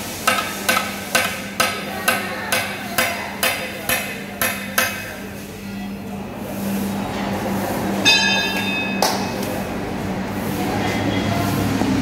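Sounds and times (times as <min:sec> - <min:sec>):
hammer striking metal wheel: 0:00.2 - 0:05.2, 0:08.0 - 0:09.4.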